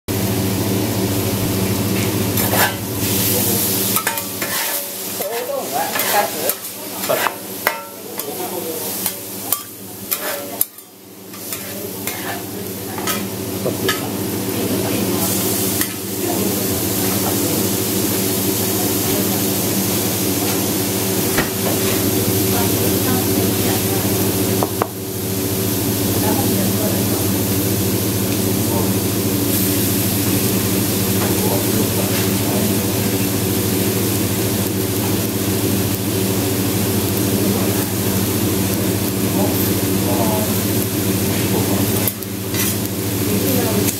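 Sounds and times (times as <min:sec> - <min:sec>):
food sizzling on a griddle: 0:00.1 - 0:43.9
steady low hum: 0:00.1 - 0:43.9
metal spatulas clacking and scraping: 0:04.0 - 0:12.3.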